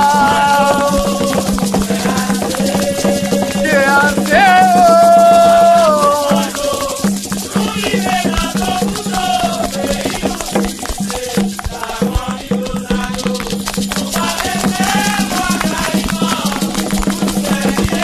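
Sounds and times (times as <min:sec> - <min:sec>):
person singing long notes: 0:00.0 - 0:08.1
rattle shaken: 0:00.0 - 0:18.0.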